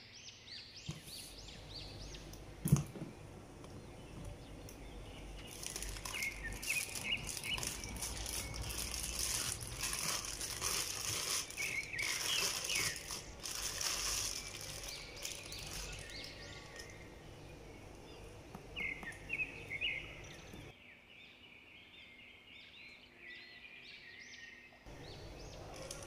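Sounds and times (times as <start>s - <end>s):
plastic bag rustling: 5.2s - 17.1s, 24.9s - 26.0s.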